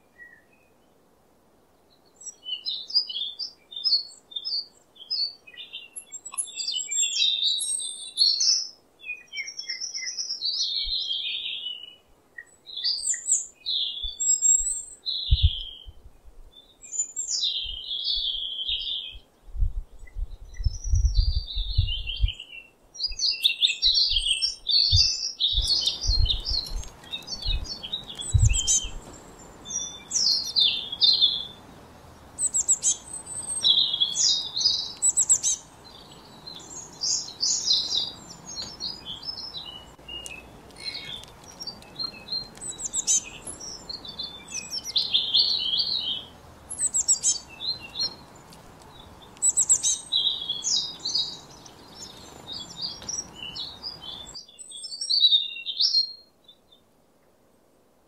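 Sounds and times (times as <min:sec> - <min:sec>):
faint steady hiss: 0:00.0 - 0:58.0
songbirds chirping: 0:00.0 - 0:58.0.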